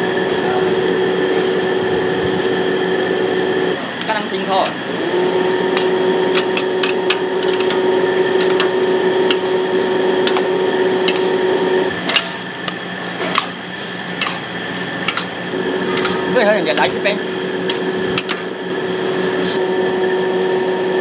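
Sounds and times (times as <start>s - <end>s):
steady hum: 0.0s - 21.0s
ladle scraping metal wok: 5.3s - 17.0s.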